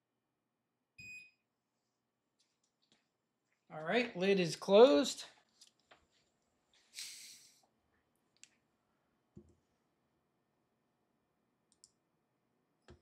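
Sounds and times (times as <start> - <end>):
computer mouse clicks: 11.7 - 12.0.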